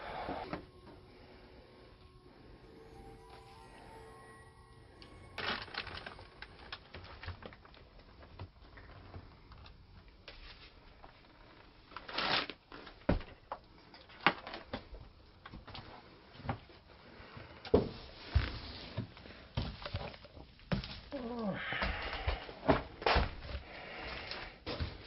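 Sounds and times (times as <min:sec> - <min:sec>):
footsteps: 0:17.8 - 0:25.0.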